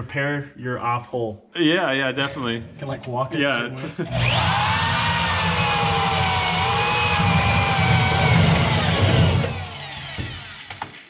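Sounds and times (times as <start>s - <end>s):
electric drill cutting sheet metal: 4.1s - 11.0s.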